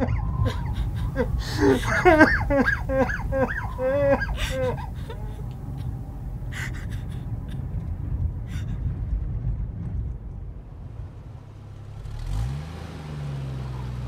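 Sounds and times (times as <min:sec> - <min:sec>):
child sobbing: 0:00.0 - 0:07.7
low steady rumble: 0:00.0 - 0:14.0
gasping breath and sniffles: 0:00.4 - 0:09.1.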